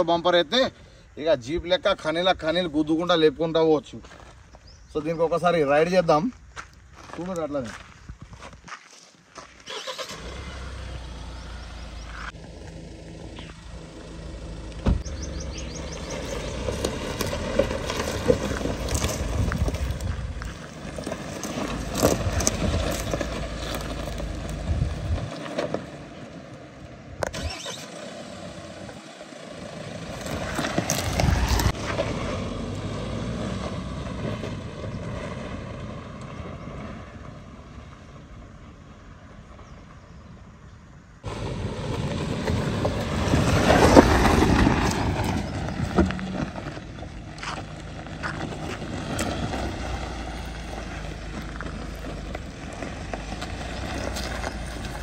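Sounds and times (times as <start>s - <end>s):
vehicle engine running: 10.1s - 39.7s, 41.2s - 55.0s.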